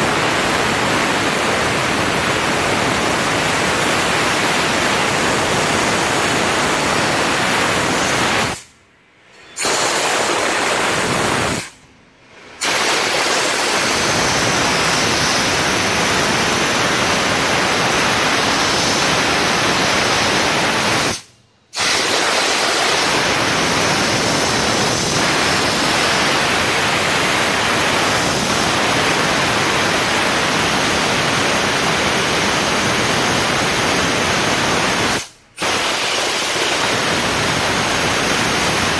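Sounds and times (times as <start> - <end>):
steam cleaner hissing: 0.0 - 8.7, 9.6 - 11.7, 12.6 - 38.9.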